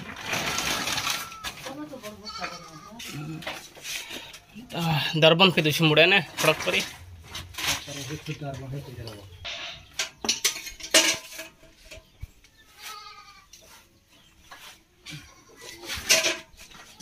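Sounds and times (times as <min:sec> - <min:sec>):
goat bleating: 0:01.2 - 0:03.4, 0:12.8 - 0:13.5, 0:15.0 - 0:15.8
steel bucket clanking: 0:05.7 - 0:12.0, 0:15.9 - 0:17.0.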